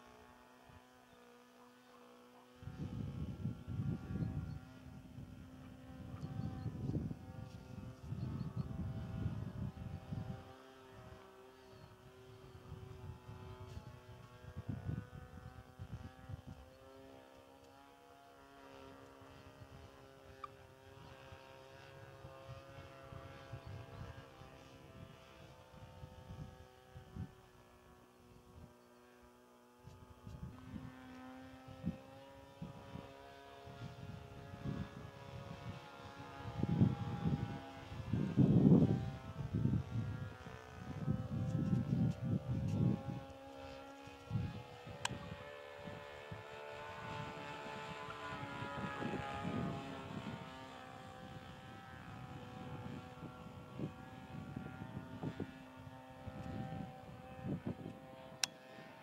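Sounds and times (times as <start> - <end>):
model airplane motor whine: 0.0 - 59.0
wind buffeting microphone: 2.6 - 11.2, 12.1 - 16.6, 33.7 - 43.5, 44.2 - 58.3.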